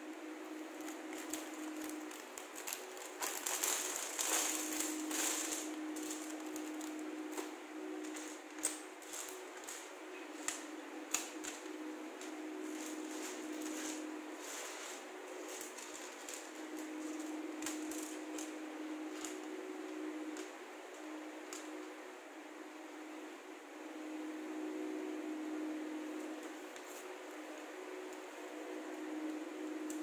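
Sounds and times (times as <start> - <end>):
low hum: 0.0 - 30.0
plastic bag crinkling: 0.6 - 19.5.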